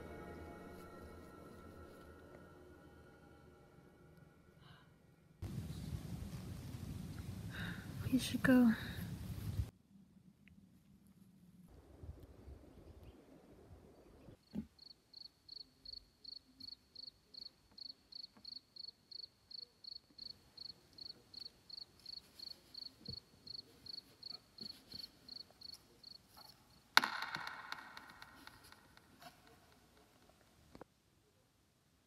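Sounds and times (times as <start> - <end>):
cricket chirping: 14.8 - 26.8.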